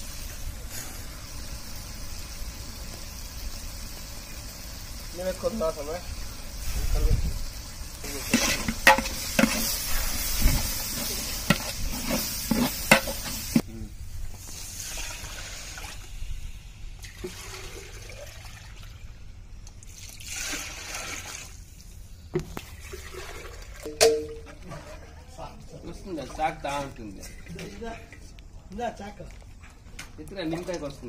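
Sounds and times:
water pouring and splashing: 0.0s - 13.6s, 14.4s - 21.8s, 22.4s - 25.4s, 30.2s - 31.0s
water hissing in hot pot: 0.0s - 23.6s.

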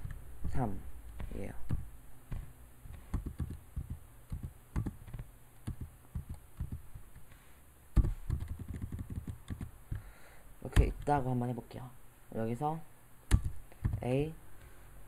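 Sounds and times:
keyboard key clicks: 1.7s - 6.8s, 13.3s - 14.1s.

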